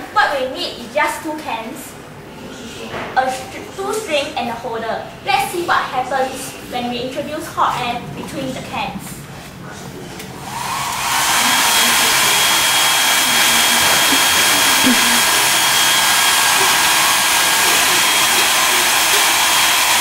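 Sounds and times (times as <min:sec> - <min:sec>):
hair dryer blowing: 0:10.4 - 0:20.0.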